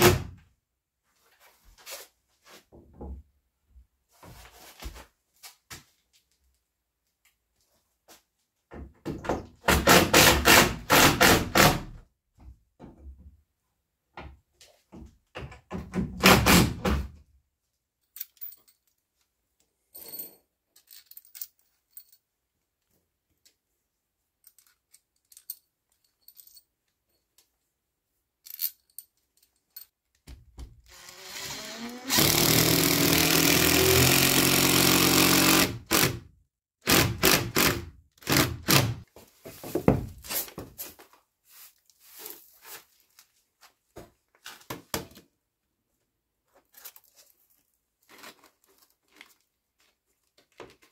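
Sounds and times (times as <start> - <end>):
cordless drill driving screw: 30.9 - 36.2.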